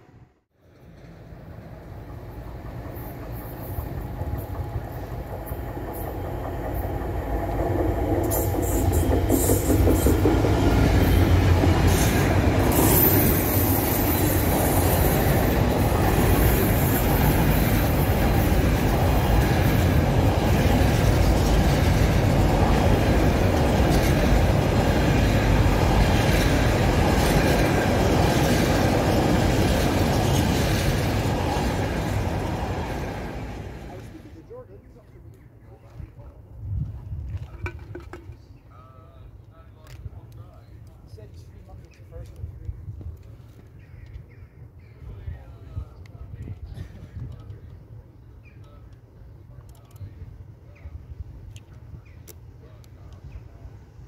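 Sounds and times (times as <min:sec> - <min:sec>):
diesel locomotive engine rumble: 0:00.6 - 0:35.8
wagons clickety-clack: 0:02.4 - 0:11.8
high squeal: 0:12.7 - 0:15.1.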